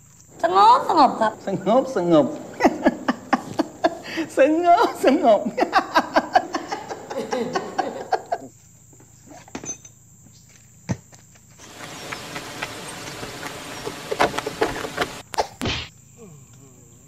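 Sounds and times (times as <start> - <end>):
person speaking: 0.3 - 5.6.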